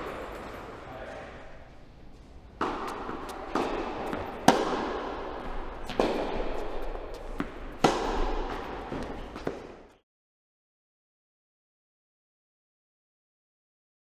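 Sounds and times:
racket striking tennis ball: 0:02.5 - 0:10.0
ball bouncing on court: 0:02.6 - 0:10.0.

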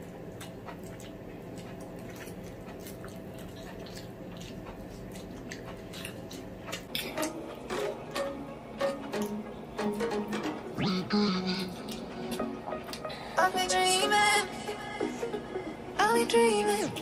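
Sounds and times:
faint steady hum: 0:00.0 - 0:17.0
noodles slurped and chewed: 0:00.4 - 0:07.2.

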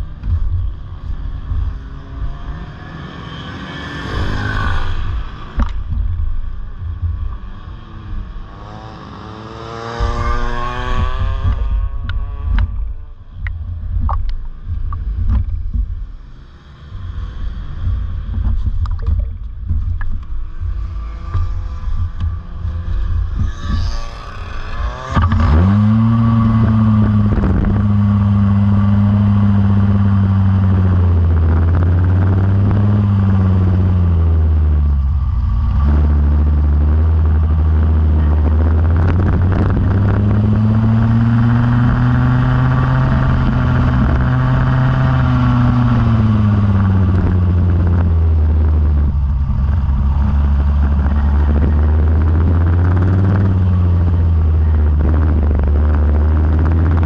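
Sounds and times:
go-kart engine running: 0:00.0 - 0:57.0.

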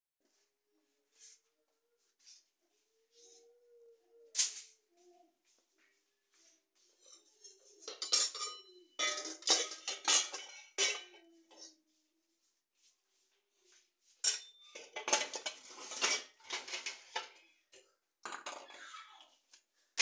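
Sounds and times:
pots and utensils clanking: 0:07.0 - 0:11.7, 0:14.2 - 0:17.4.

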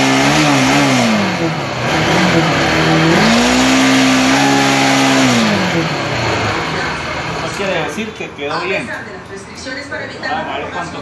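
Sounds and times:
motorcycle engine revving: 0:00.0 - 0:08.0.

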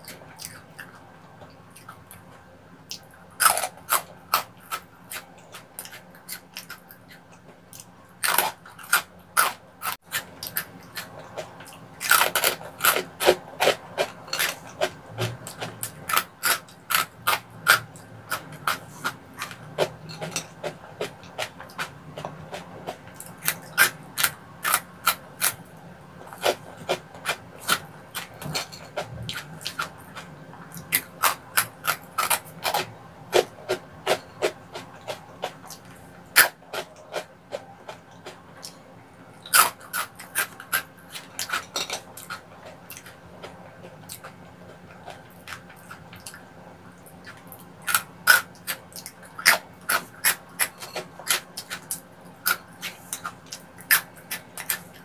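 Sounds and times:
crunching crispy snacks: 0:07.8 - 0:25.7.

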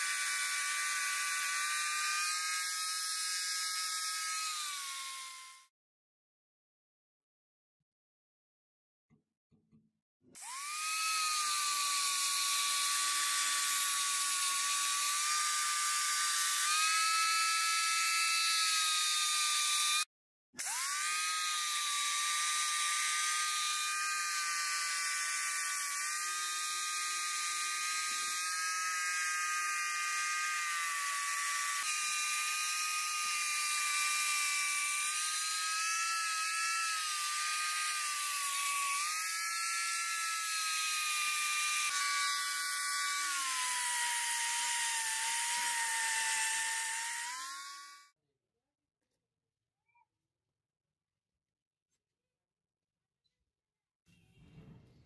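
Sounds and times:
angle grinder whine: 0:20.6 - 0:48.1.

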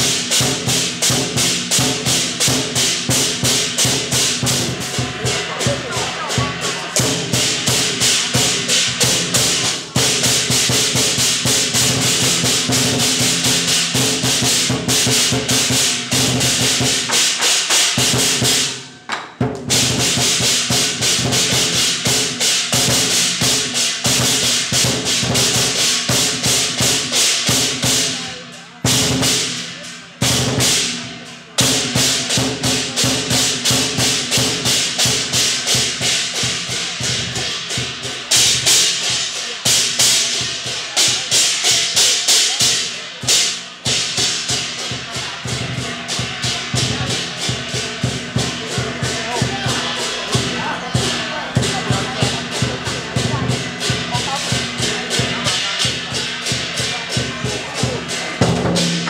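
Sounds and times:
cymbals crashing: 0:00.0 - 0:59.0
drum beating fast: 0:00.0 - 0:59.0
gongs ringing: 0:00.2 - 0:10.4.

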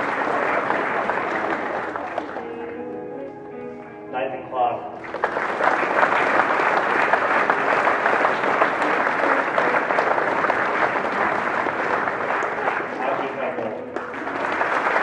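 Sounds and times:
crowd applause: 0:00.0 - 0:03.7, 0:05.0 - 0:15.0.

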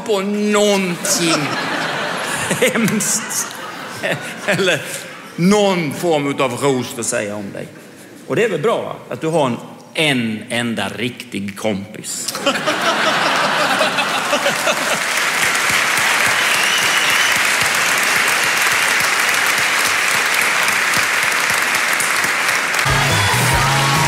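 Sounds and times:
audience applauding: 0:12.6 - 0:24.0
music with low bass line: 0:22.9 - 0:24.0.

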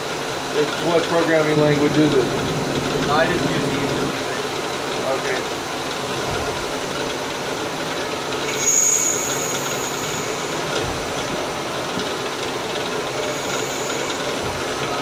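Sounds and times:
lathe running: 0:00.0 - 0:15.0
high-pitched whine: 0:01.2 - 0:04.7, 0:08.4 - 0:11.5, 0:12.8 - 0:15.0.

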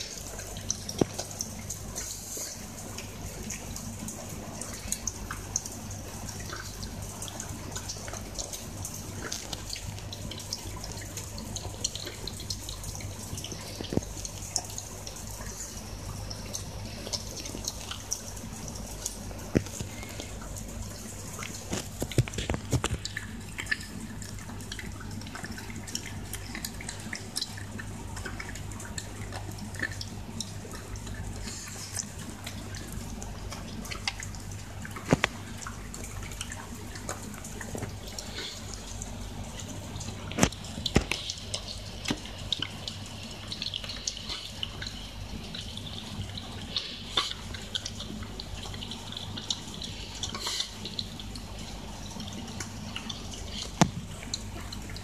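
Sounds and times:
dog eating wet food: 0:00.0 - 0:55.0.

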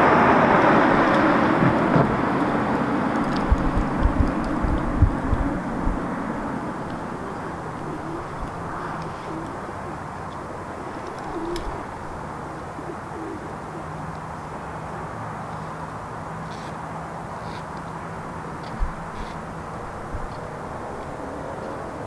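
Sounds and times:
distant traffic: 0:00.0 - 0:22.0
vehicle low rumble: 0:00.0 - 0:22.0
pigeon cooing: 0:01.1 - 0:14.1.

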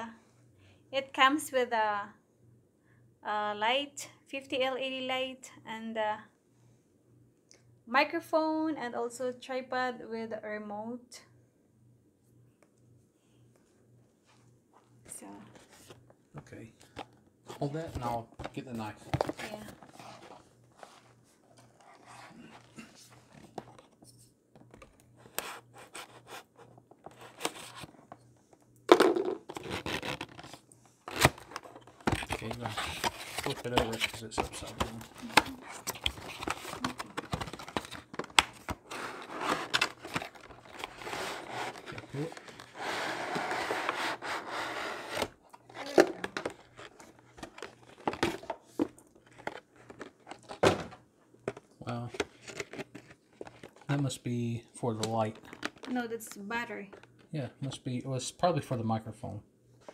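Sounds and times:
cardboard scratching and tearing: 0:32.3 - 0:37.9
plastic tray sliding out of cardboard: 0:41.0 - 0:45.3.

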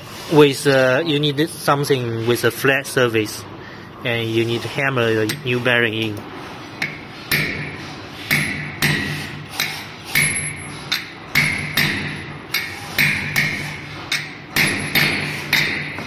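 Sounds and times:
hammer striking metal: 0:06.8 - 0:16.0.

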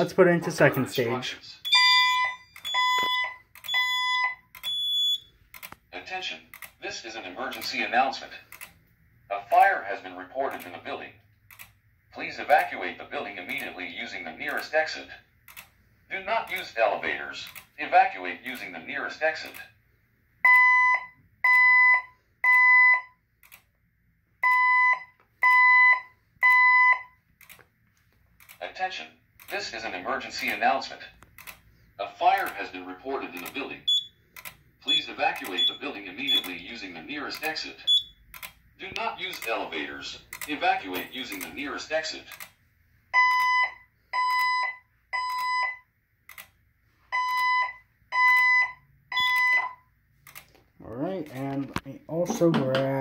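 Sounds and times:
fire alarm beeps: 0:01.6 - 0:05.3, 0:20.4 - 0:23.2, 0:24.4 - 0:27.2, 0:33.9 - 0:34.2, 0:34.9 - 0:36.5, 0:37.9 - 0:38.2, 0:43.1 - 0:45.9, 0:47.1 - 0:49.9.

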